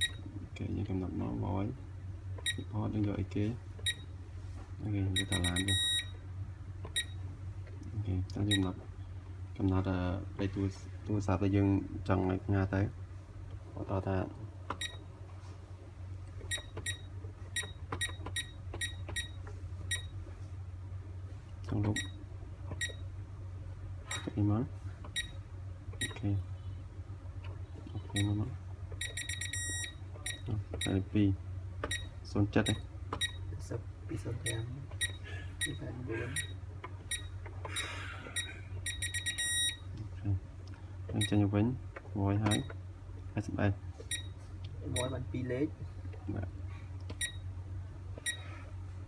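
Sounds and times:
keypad beeping: 0:00.0 - 0:00.3, 0:02.4 - 0:02.7, 0:03.8 - 0:04.1, 0:05.1 - 0:06.1, 0:06.9 - 0:07.2, 0:08.5 - 0:08.8, 0:16.5 - 0:20.2, 0:21.9 - 0:22.2, 0:22.8 - 0:23.0, 0:25.1 - 0:25.4, 0:26.0 - 0:26.2, 0:28.1 - 0:28.4, 0:29.0 - 0:31.1, 0:31.8 - 0:33.5, 0:34.4 - 0:35.8, 0:36.4 - 0:39.9, 0:42.4 - 0:42.8, 0:44.1 - 0:45.2, 0:47.1 - 0:47.4, 0:48.2 - 0:48.5
steady low hum: 0:00.0 - 0:49.0.

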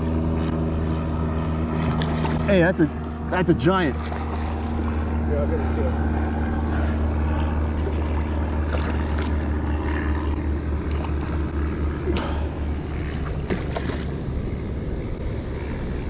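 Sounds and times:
fish splashing in water: 0:01.7 - 0:03.0, 0:03.9 - 0:05.1, 0:07.8 - 0:10.2, 0:10.8 - 0:14.6.

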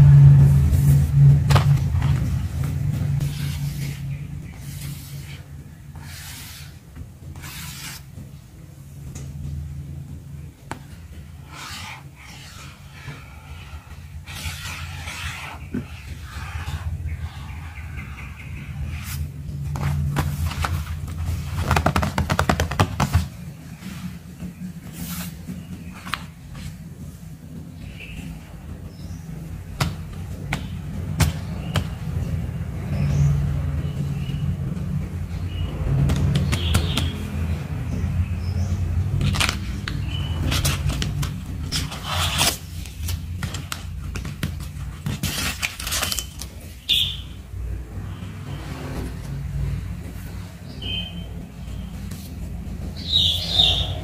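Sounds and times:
steady low rumble: 0:00.0 - 0:07.5
steady low hum: 0:00.0 - 0:45.9
fingers tapping sticker packs: 0:19.8 - 0:23.3, 0:36.0 - 0:37.2, 0:39.2 - 0:46.7.

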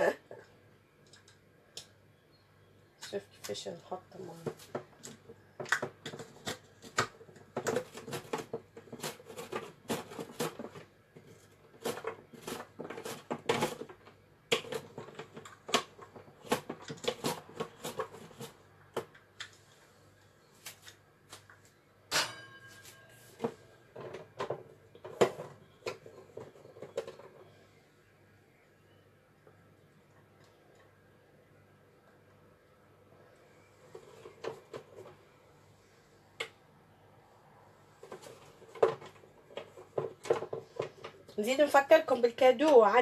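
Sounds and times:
vegetable dicer plastic clacks: 0:04.4 - 0:19.5.

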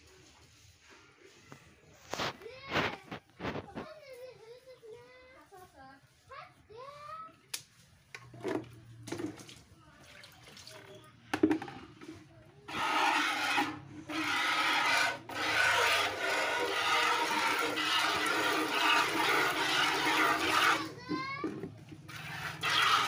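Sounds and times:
milk squirting into plastic bucket: 0:08.4 - 0:11.6, 0:12.7 - 0:23.0.

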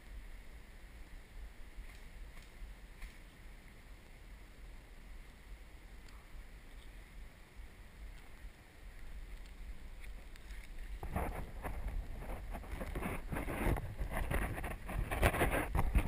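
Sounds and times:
leaves and brush rustling: 0:00.0 - 0:16.0
wind rumble on microphone: 0:00.0 - 0:16.0.

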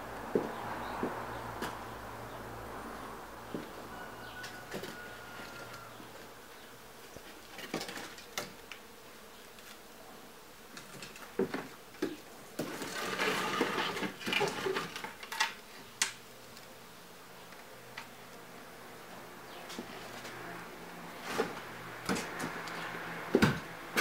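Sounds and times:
wooden boards knocking and scraping: 0:23.3 - 0:24.0.

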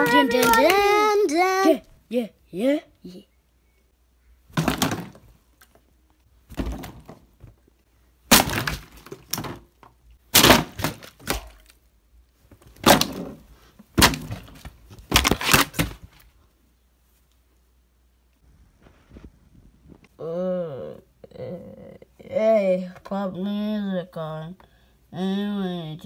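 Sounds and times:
plastic bottles falling on windowsill: 0:00.0 - 0:01.0, 0:04.5 - 0:05.7, 0:06.4 - 0:07.6, 0:08.3 - 0:11.7, 0:12.5 - 0:16.3.

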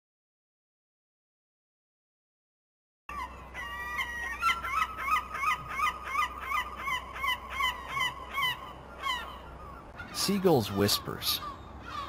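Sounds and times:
gulls calling: 0:03.1 - 0:12.0.

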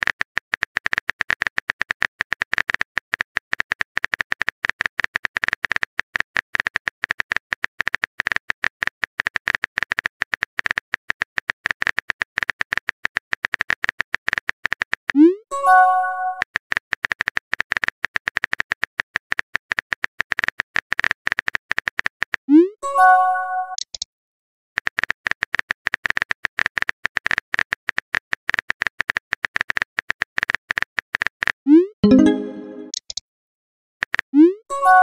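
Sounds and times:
keyboard typing ticks: 0:23.7 - 0:24.1, 0:24.9 - 0:33.2.

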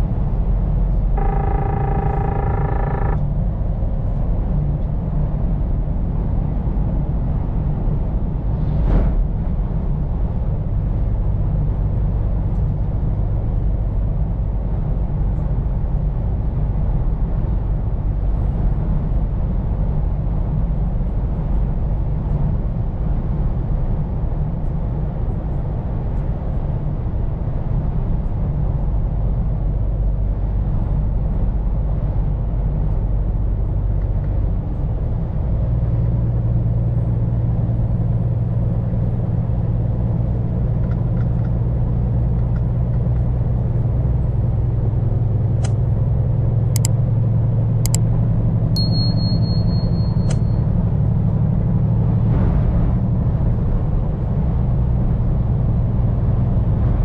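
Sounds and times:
truck diesel engine running: 0:00.0 - 0:03.8
road and tyre noise: 0:00.0 - 0:57.0.

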